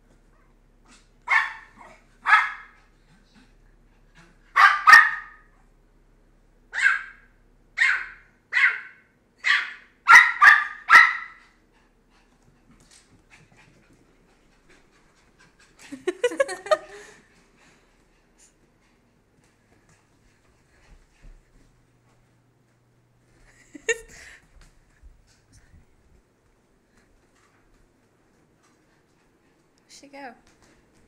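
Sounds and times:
puppy yapping: 1.3s - 2.8s, 4.6s - 5.5s, 6.8s - 11.4s.

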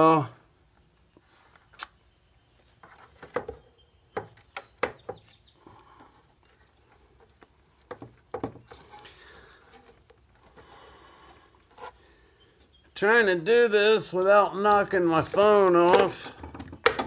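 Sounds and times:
sharp clicks and knocks: 14.2s - 17.0s.

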